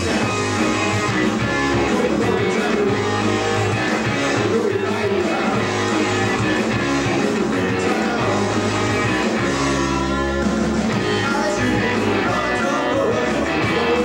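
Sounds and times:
bass guitar: 0:00.0 - 0:14.0
drums: 0:00.0 - 0:14.0
electric guitar: 0:00.0 - 0:14.0
person singing: 0:00.0 - 0:14.0.

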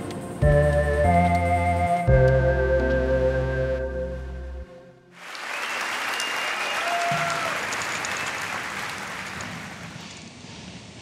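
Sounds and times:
intro music: 0:00.0 - 0:05.1
audience applauding: 0:05.1 - 0:10.0.

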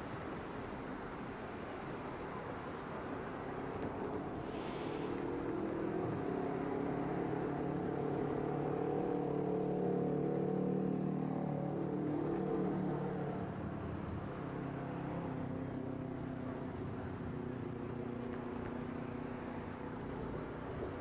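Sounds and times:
rail vehicle running hum: 0:00.0 - 0:07.7, 0:12.8 - 0:21.0
brief hiss: 0:04.4 - 0:05.3.

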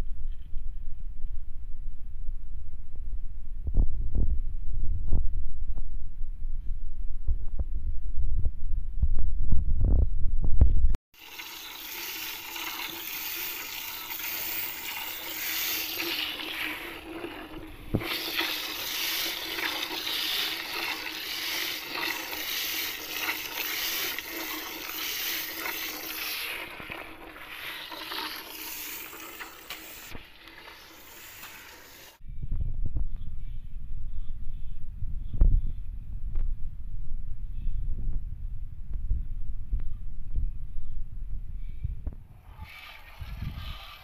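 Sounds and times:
milk squirting into bucket: 0:11.2 - 0:32.1, 0:42.4 - 0:44.0.

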